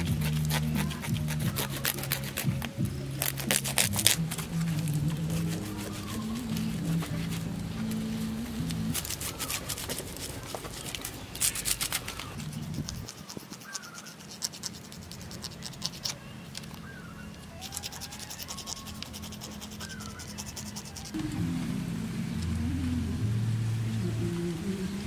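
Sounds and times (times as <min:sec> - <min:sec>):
knife scraping scales: 0:00.0 - 0:07.6, 0:08.8 - 0:16.3, 0:17.6 - 0:21.2.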